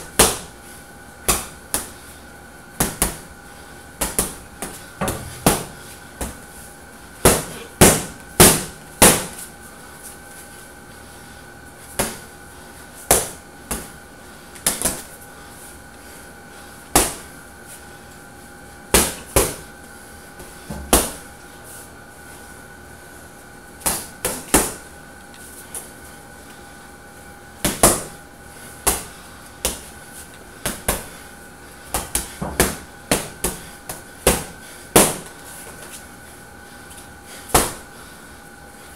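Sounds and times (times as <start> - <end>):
faint steady hum: 0.0 - 38.9
boxing gloves punching heavy bag: 4.0 - 6.4, 7.2 - 9.4, 20.7 - 21.3, 32.0 - 35.3, 37.5 - 37.9.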